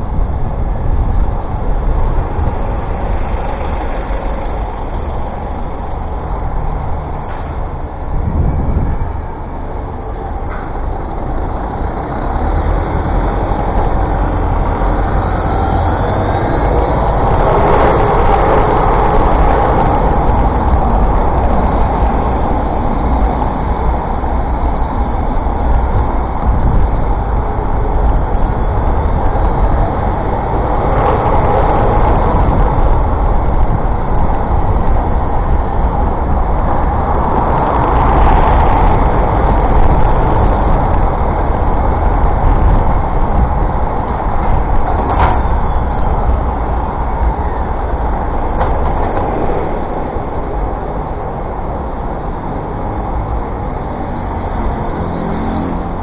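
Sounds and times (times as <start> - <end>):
city road traffic rumble: 0.0 - 56.0.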